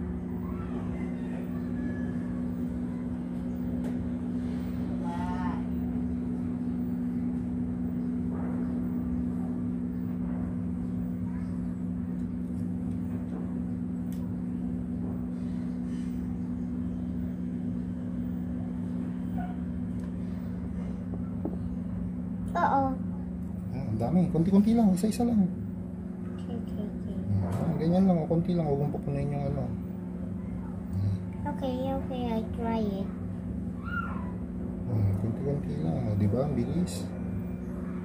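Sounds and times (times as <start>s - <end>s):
low two-tone motor hum: 0.0s - 38.0s.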